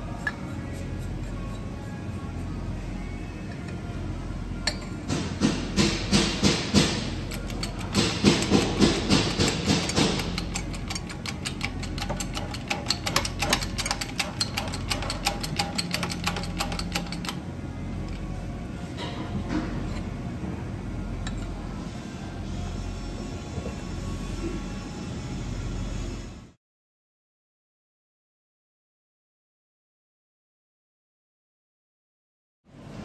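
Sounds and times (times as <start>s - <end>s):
steady low hum: 0.0s - 26.6s
shop press metallic clanks: 4.7s - 17.4s.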